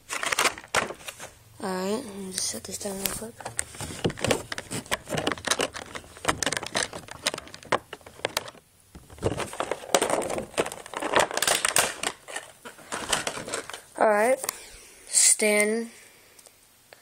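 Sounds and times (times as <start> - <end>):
crinkling rustles: 0.0 - 1.4, 2.3 - 14.5
handling noise clicks and knocks: 3.4 - 13.8.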